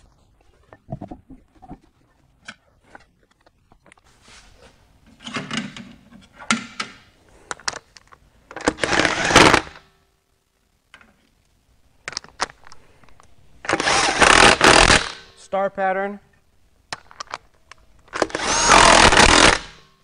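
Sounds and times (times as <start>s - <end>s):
cordless power tool spinning: 18.2s - 19.7s.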